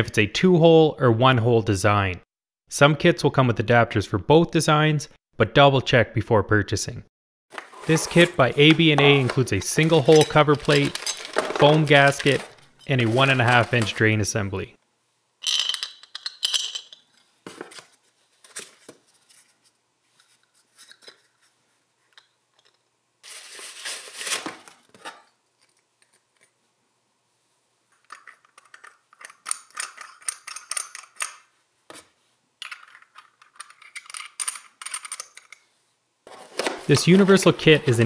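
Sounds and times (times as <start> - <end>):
plastic wrapping rustling: 7.5 - 14.2, 23.2 - 25.0
metal parts clinking: 9.1 - 14.0, 28.0 - 31.5, 32.6 - 35.6.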